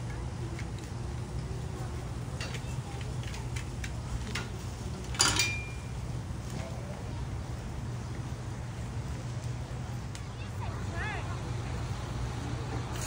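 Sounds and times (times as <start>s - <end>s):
steady low hum: 0.0s - 13.0s
dishes clinking: 5.2s - 5.9s.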